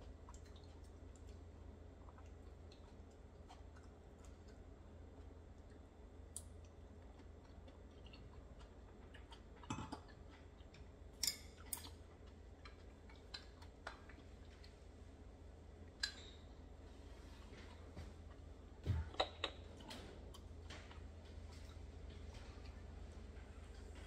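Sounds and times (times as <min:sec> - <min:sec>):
chewing: 0:00.0 - 0:14.9
low hum: 0:00.0 - 0:24.0.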